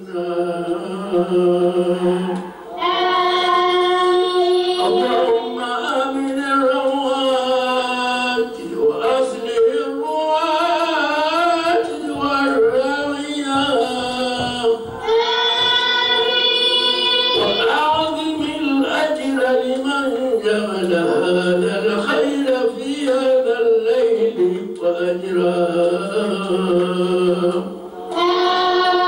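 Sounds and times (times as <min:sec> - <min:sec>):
man chanting a hymn into a microphone: 0:00.0 - 0:02.4, 0:04.7 - 0:15.0, 0:17.4 - 0:27.9.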